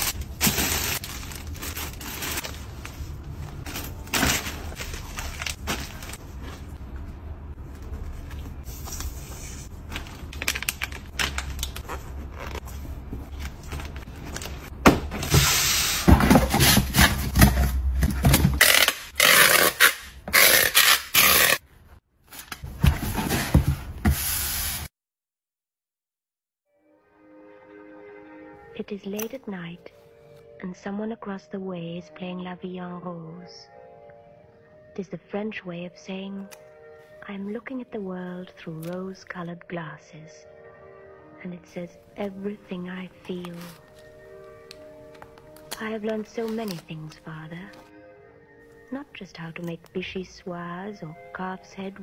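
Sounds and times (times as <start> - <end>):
plastic bags and paper rustling: 0.0 - 6.8, 7.6 - 14.7, 43.3 - 44.2, 45.2 - 47.2
packing tape tearing: 18.4 - 21.6.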